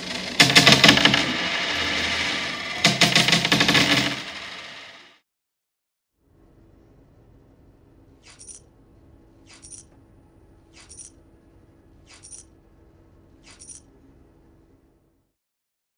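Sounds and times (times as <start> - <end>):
low steady hum: 6.2 - 15.3
metallic coin clinks: 8.2 - 8.7, 9.5 - 9.9, 10.8 - 11.2, 12.1 - 12.6, 13.4 - 13.9.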